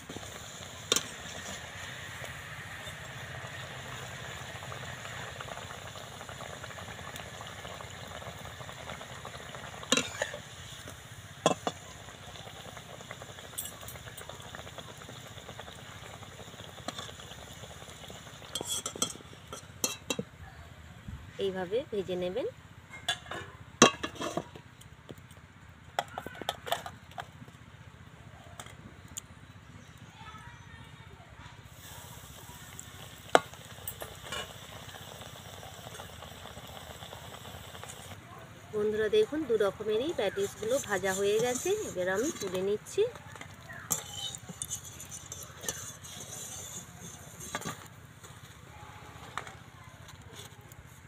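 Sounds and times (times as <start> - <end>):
hot oil sizzling: 0.0 - 20.2, 31.6 - 48.7
metal utensils clinking on pan: 9.9 - 10.4, 18.5 - 20.2, 40.3 - 47.9.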